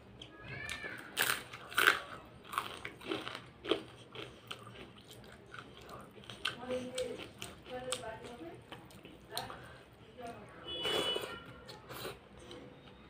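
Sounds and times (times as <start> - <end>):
crunching bites and chewing: 0.7 - 8.0.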